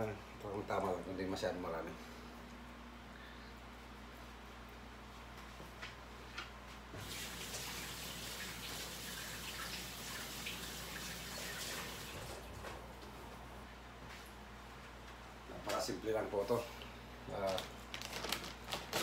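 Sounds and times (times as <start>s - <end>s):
kitchen tap running: 7.0s - 12.5s.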